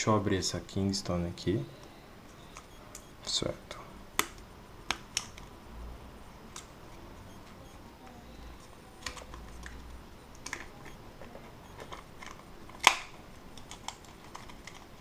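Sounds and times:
plastic clicks and crackles: 8.6s - 15.0s
loud plastic snap: 12.8s - 13.2s.

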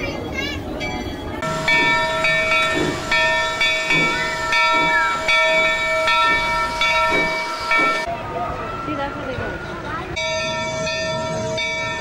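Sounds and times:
steam hissing: 1.4s - 8.1s.

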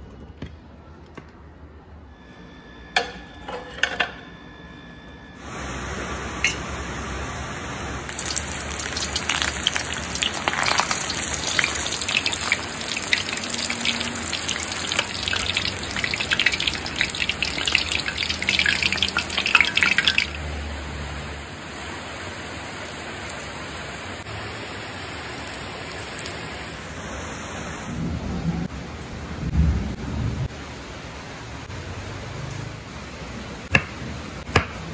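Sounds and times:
deep-frying in hot oil: 5.4s - 28.1s.

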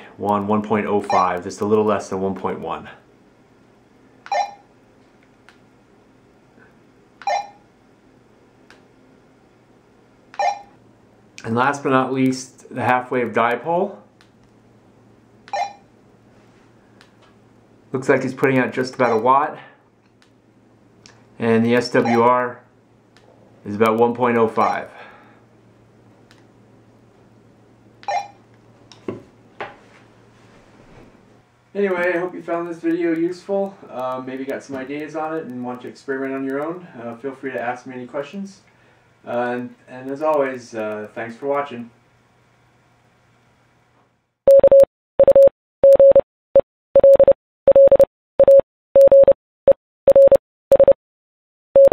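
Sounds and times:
morse code beeps: 4.3s - 4.7s, 7.2s - 7.6s, 10.4s - 10.7s, 28.1s - 28.4s, 44.5s - 46.2s, 47.0s - 49.4s, 50.1s - 51.0s.

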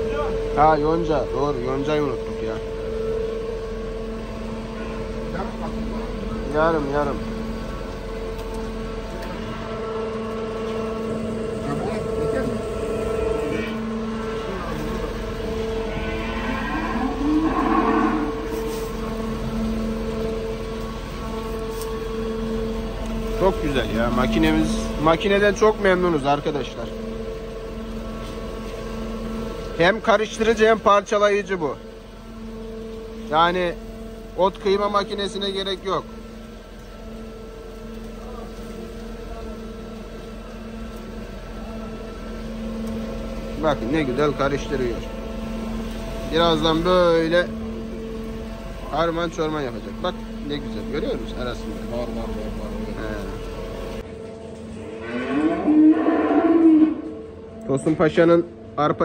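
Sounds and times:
feed mixer humming: 8.8s - 28.0s
cow mooing: 12.9s - 19.7s, 54.8s - 57.3s.

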